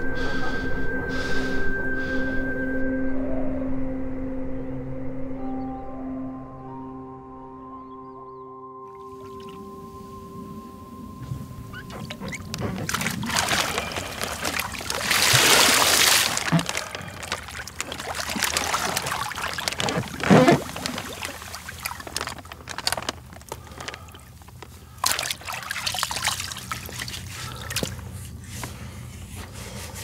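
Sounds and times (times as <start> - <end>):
water sloshing and splashing: 9.0 - 10.0, 11.2 - 30.0
water pouring: 11.7 - 27.9.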